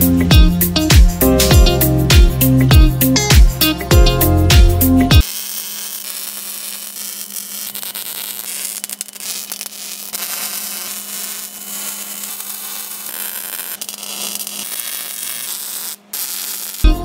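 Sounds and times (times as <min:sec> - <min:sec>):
music: 0:00.0 - 0:05.2
welder crackling and sizzling: 0:05.2 - 0:17.0.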